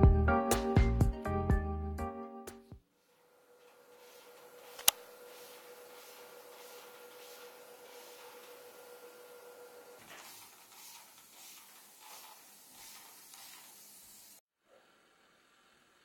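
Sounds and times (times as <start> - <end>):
spray bottle hissing: 10.0 - 14.4.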